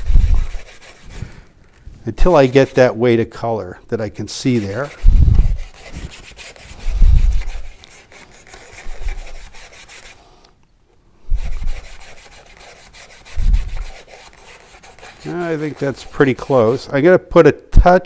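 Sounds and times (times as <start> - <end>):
paintbrush scrubbing plastic palette: 0.0 - 3.0, 4.3 - 10.2, 11.3 - 17.0.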